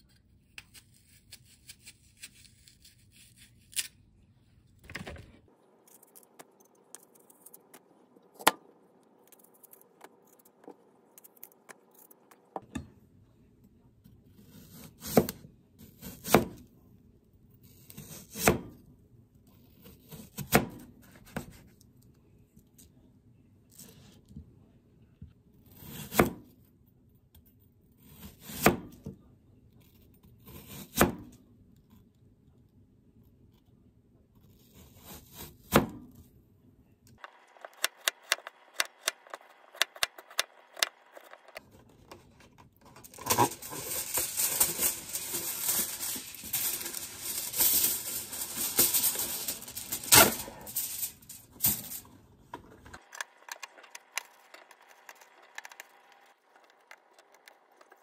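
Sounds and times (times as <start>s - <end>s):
tray liner crinkling and rustling: 41.7s - 55.7s.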